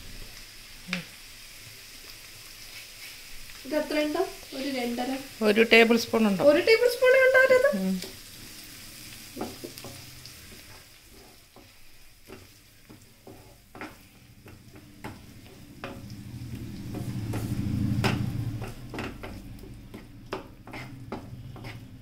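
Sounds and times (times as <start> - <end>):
soft sizzle of frying: 0.0 - 22.0
wooden spatula scraping pan: 6.8 - 22.0.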